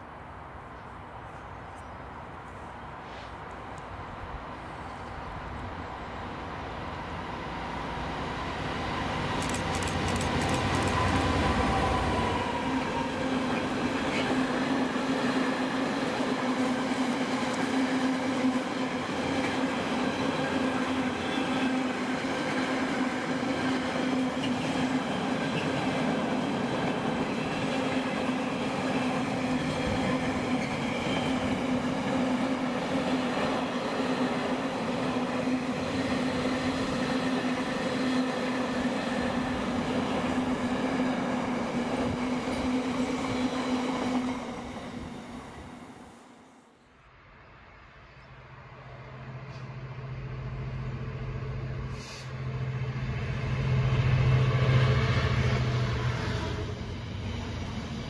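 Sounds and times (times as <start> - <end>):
train wheels droning on rails: 4.2 - 46.7, 49.1 - 58.0
diesel locomotive engine rumble: 48.8 - 58.0.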